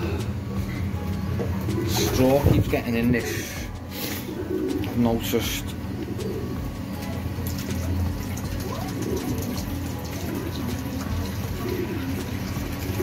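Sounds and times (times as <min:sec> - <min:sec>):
water running into plastic container: 0:07.4 - 0:13.0.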